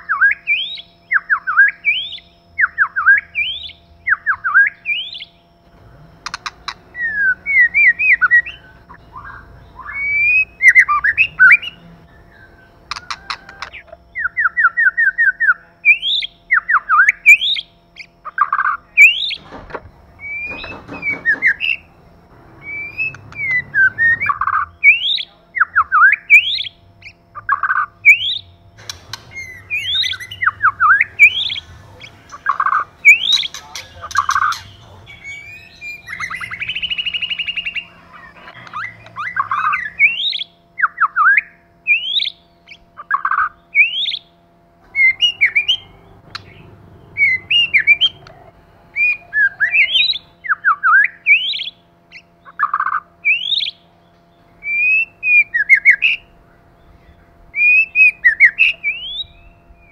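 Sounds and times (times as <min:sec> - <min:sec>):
bird singing whistled phrases: 0:00.0 - 0:05.4, 0:06.4 - 0:19.4, 0:22.6 - 0:28.6, 0:29.3 - 0:44.3, 0:45.0 - 0:46.6, 0:49.0 - 0:53.9, 0:54.6 - 0:59.9
harsh buzzy bird rattle: 0:03.3 - 0:09.0, 0:12.8 - 0:14.0, 0:17.4 - 0:25.3, 0:26.4 - 0:40.5.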